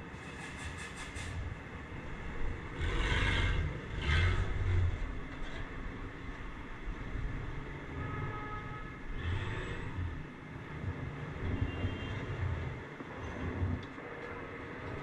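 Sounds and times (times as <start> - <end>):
traffic rumble of engines and tyres: 0.0 - 15.0.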